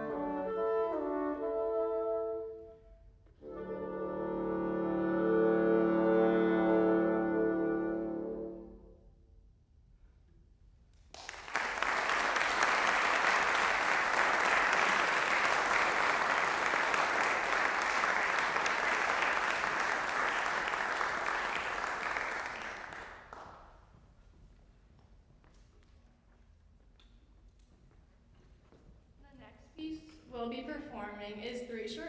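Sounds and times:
audience applauding: 11.1s - 23.6s.

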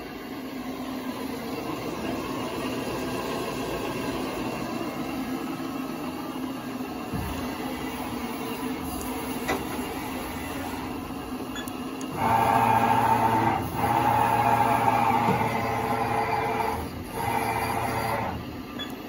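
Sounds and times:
machine running hum: 0.0s - 19.0s
servo motors whining: 12.1s - 18.4s.

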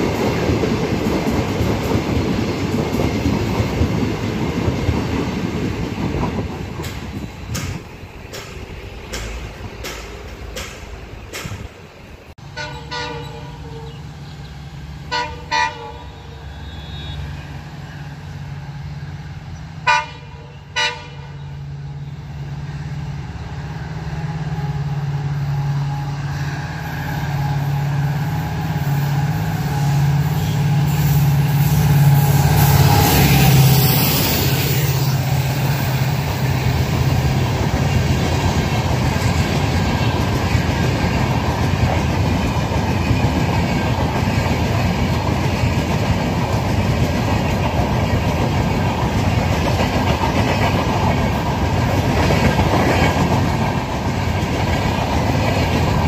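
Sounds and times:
train rail and wheel noise: 0.0s - 56.0s
train horn blasts: 12.4s - 17.5s, 19.8s - 22.2s, 29.7s - 31.2s.

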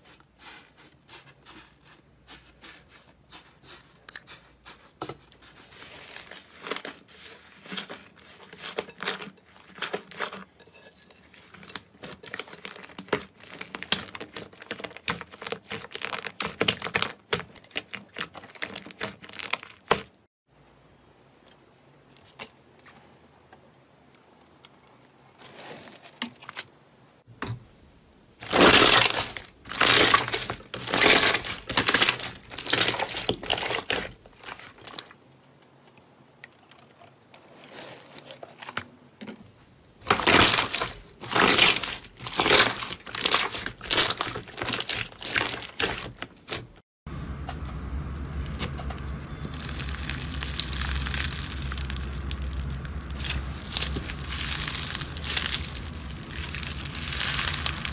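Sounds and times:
slime squishing: 0.4s - 20.1s, 28.4s - 35.1s, 40.0s - 46.8s, 48.2s - 57.9s
slime crackling and popping: 28.4s - 35.1s, 40.0s - 46.6s, 48.2s - 57.9s.

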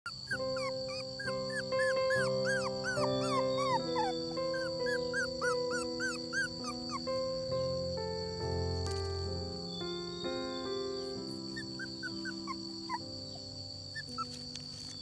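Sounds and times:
puppy whining and whimpering: 0.1s - 7.3s, 11.0s - 15.0s
background music with sustained chords: 0.2s - 15.0s.

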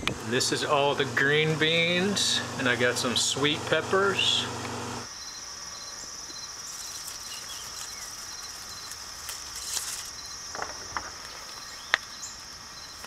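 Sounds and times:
crickets trilling: 5.0s - 13.0s
insect pulsing softly: 5.1s - 13.0s.

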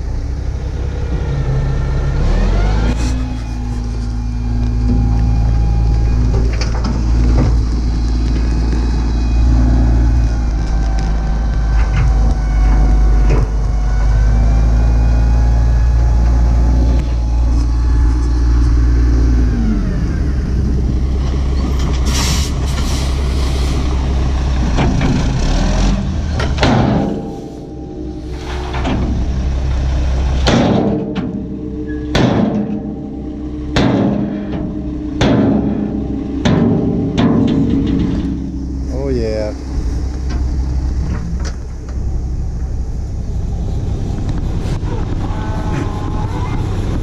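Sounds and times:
diesel truck engine running: 0.0s - 47.0s.

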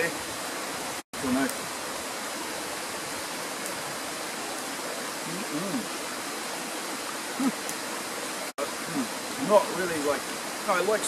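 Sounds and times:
stream running over rocks: 0.0s - 11.0s
man humming: 5.2s - 5.9s, 7.4s - 7.6s, 8.9s - 9.1s.

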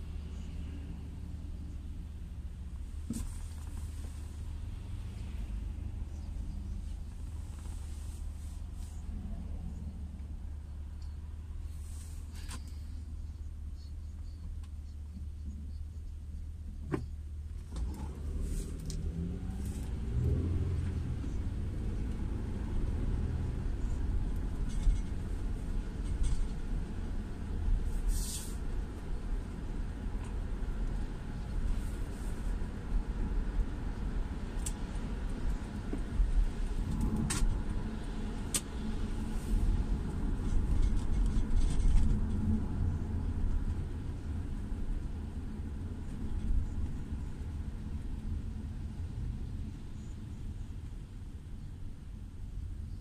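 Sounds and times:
car engine and road rumble: 0.0s - 53.0s.

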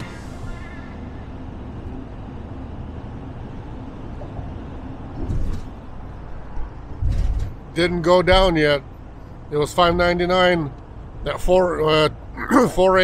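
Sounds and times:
road and engine noise in van: 0.0s - 13.0s.

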